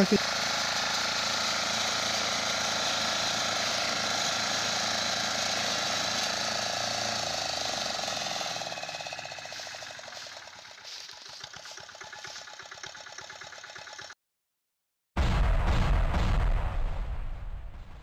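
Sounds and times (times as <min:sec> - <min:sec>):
cutter bar cutting crop: 0:00.0 - 0:14.2
small engine running hard: 0:00.0 - 0:14.2.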